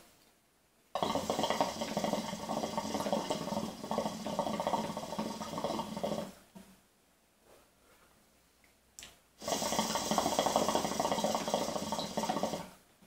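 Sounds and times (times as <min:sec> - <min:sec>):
hookah water bubbling: 0:01.0 - 0:06.4, 0:09.4 - 0:12.8.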